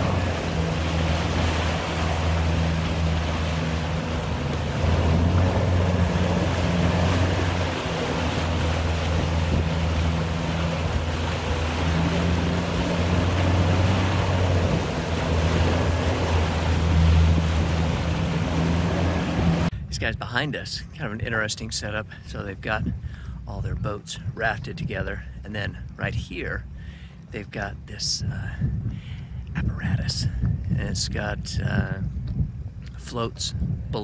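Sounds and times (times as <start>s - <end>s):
boat motor droning: 0.0s - 19.7s
choppy water washing: 0.0s - 19.7s
wind: 0.0s - 34.0s.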